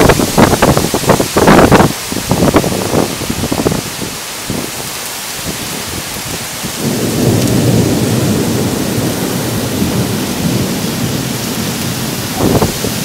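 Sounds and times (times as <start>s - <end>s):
heavy rain falling: 0.0s - 13.0s
thunder rumbling: 5.5s - 13.0s.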